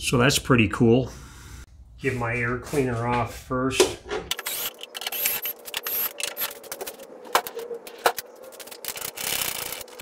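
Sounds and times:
tools clicking and scraping: 4.3s - 10.0s.

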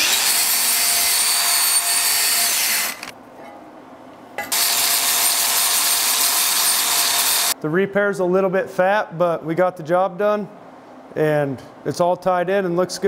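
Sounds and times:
angle grinder with wire wheel: 0.0s - 3.1s, 4.5s - 7.6s.

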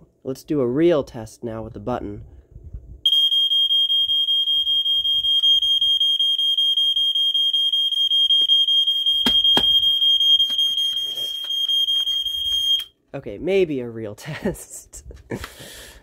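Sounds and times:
smoke detector alarm tone: 3.1s - 13.0s
sharp knocks: 9.2s - 9.8s.

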